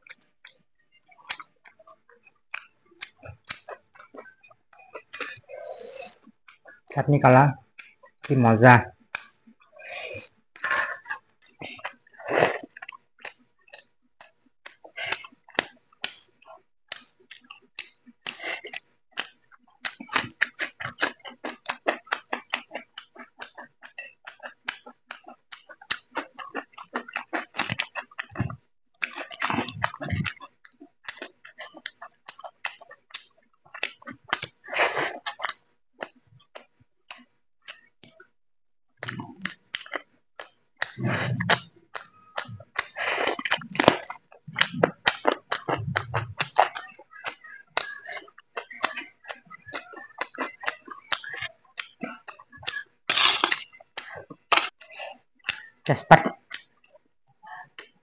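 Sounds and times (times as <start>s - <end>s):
open-mouth chewing: 0.0s - 6.9s, 9.0s - 38.3s, 39.0s - 58.0s.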